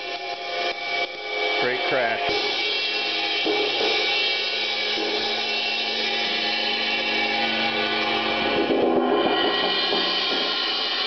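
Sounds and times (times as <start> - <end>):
crash cymbal ringing: 0.0 - 11.0.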